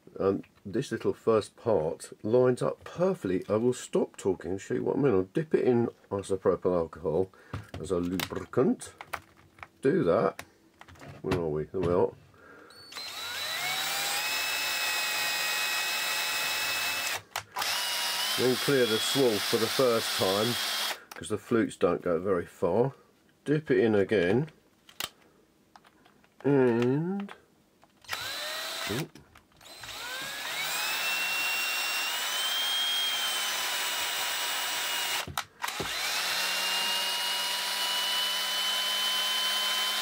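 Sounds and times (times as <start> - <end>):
cordless drill motor whine: 12.7 - 21.0, 28.0 - 40.0.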